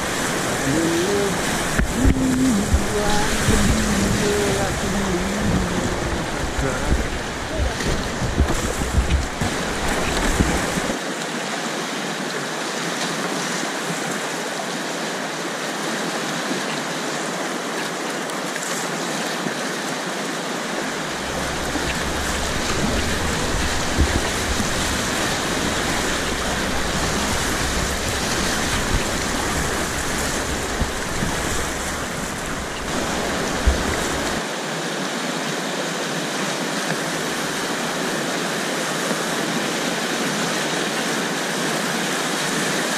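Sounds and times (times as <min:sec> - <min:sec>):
deep rumble: 0:00.0 - 0:10.9, 0:20.9 - 0:34.4
whitewater rapids rushing: 0:00.0 - 0:42.9.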